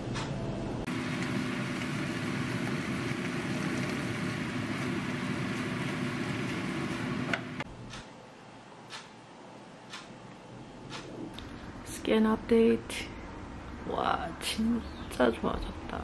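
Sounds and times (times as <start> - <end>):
greens sizzling in a pan: 0.9 - 7.4.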